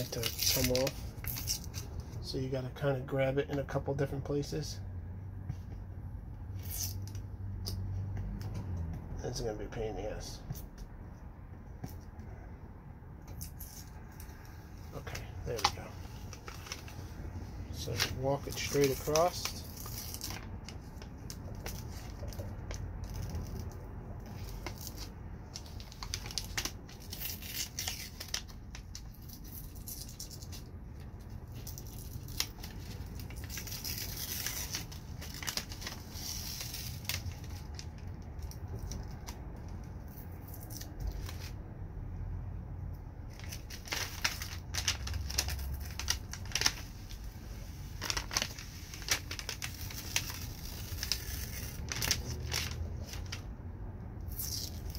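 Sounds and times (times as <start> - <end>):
plastic film peeling crackle: 0.0 - 2.1, 13.3 - 41.6, 43.3 - 53.5, 54.3 - 54.9.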